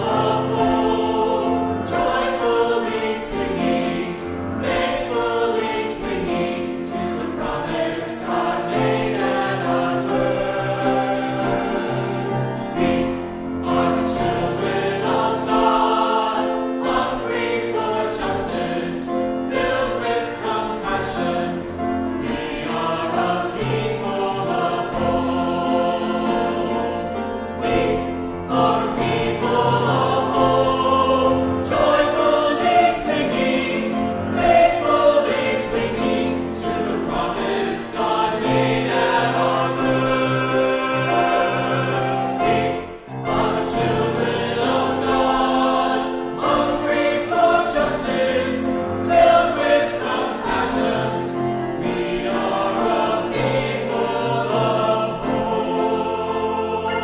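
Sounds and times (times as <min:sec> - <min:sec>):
choir singing: 0:00.0 - 0:57.0.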